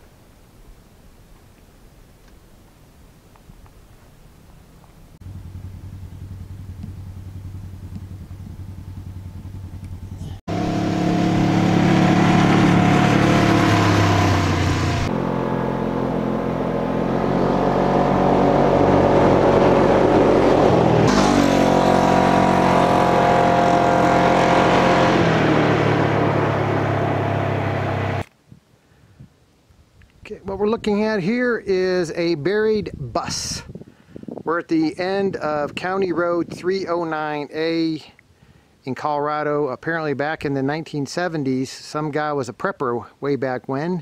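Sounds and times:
utility vehicle engine passing: 0:05.2 - 0:28.2.

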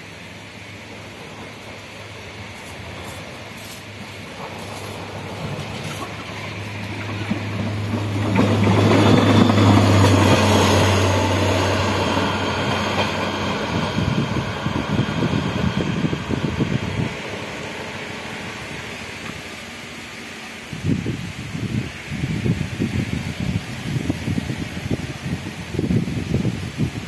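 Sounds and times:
wheels clattering on rails: 0:00.8 - 0:19.9
diesel engine passing by: 0:01.1 - 0:19.9.

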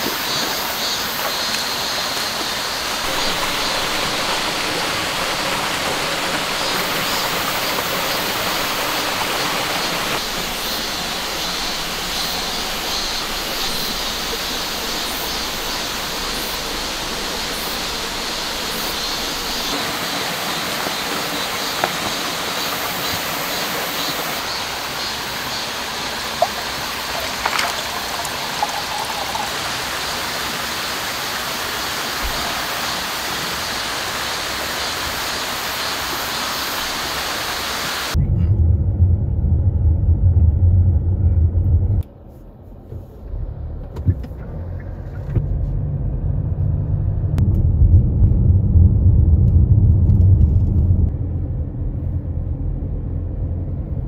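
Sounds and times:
rushing stream water: 0:00.0 - 0:38.2
car road and engine rumble: 0:00.6 - 0:33.4, 0:38.0 - 0:54.0.

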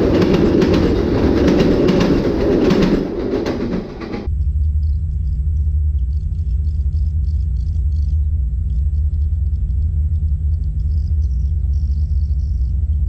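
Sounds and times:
distant diesel locomotive rumble: 0:00.0 - 0:13.0
faint bird chirps: 0:08.9 - 0:13.0.

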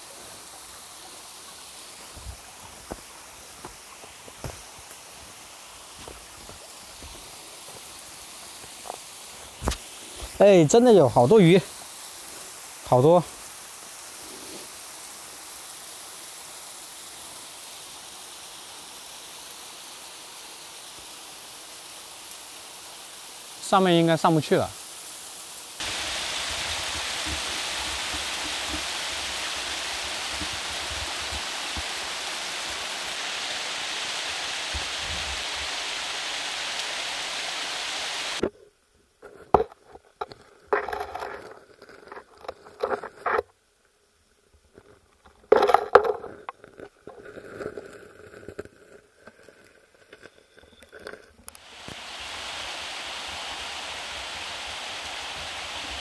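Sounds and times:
stream rushing: 0:00.0 - 0:38.4, 0:51.5 - 0:56.0
waterfall splashing into pool: 0:00.0 - 0:38.5, 0:51.6 - 0:56.0.

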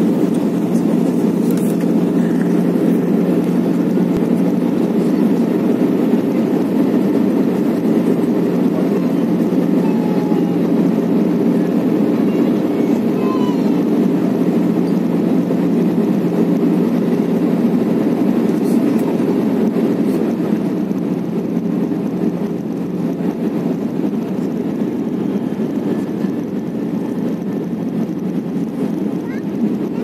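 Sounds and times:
aircraft cabin engine rush: 0:00.0 - 0:30.0
steady low hum: 0:00.0 - 0:30.0.

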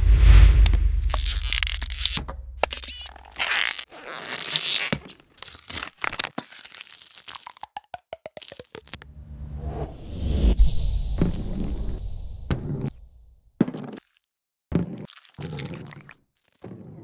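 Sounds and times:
deep rumble: 0:00.0 - 0:03.1, 0:09.0 - 0:13.4.

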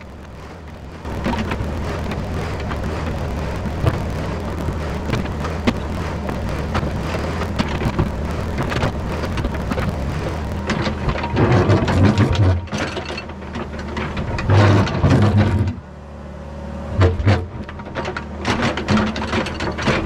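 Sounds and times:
bucket scraping through rocky soil: 0:00.0 - 0:13.1
excavator diesel engine under load: 0:00.0 - 0:20.0
rocks clattering against steel bucket: 0:07.5 - 0:15.8.

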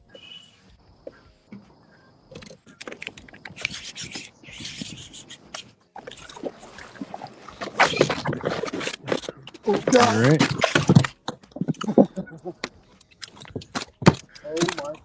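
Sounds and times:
scraping and rubbing on kayak: 0:01.1 - 0:11.8.

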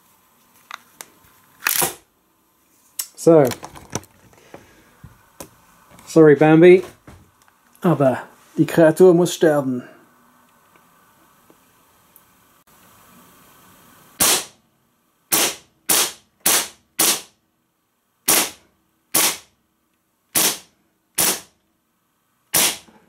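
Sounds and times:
bb pistol shots: 0:14.2 - 0:14.6, 0:15.3 - 0:17.3, 0:18.3 - 0:19.5, 0:20.4 - 0:21.5, 0:22.5 - 0:22.9.

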